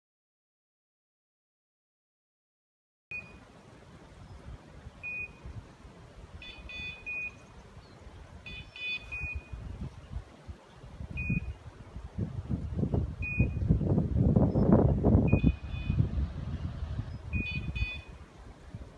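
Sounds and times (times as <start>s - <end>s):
richer beeps: 3.1s - 3.4s, 5.0s - 5.4s, 6.4s - 7.4s, 8.5s - 9.7s, 11.2s - 11.6s, 13.2s - 13.6s, 15.2s - 16.0s, 17.2s - 18.2s
short high beeps: 3.1s - 3.4s, 5.0s - 5.4s, 6.4s - 7.4s, 8.5s - 9.7s, 11.2s - 11.6s, 13.2s - 13.6s, 15.3s - 16.0s, 17.3s - 18.2s.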